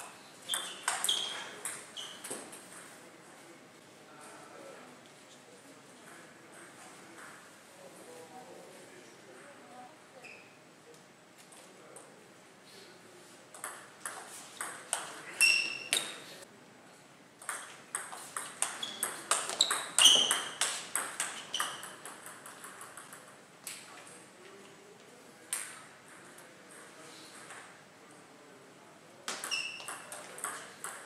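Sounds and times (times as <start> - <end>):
table tennis ball hits: 0.5 - 2.5, 13.6 - 16.2, 17.4 - 23.3, 29.3 - 31.0.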